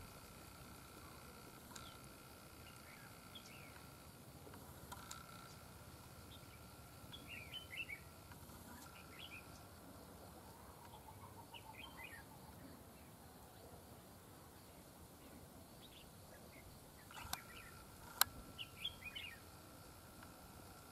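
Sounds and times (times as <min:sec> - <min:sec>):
bird chirping faintly: 0:05.0 - 0:19.8.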